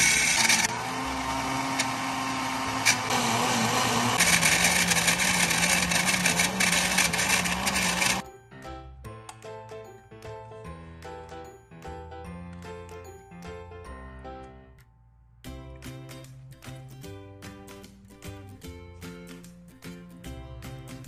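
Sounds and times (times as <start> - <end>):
blender motor running: 0.0 - 8.2
background music: 8.2 - 21.0.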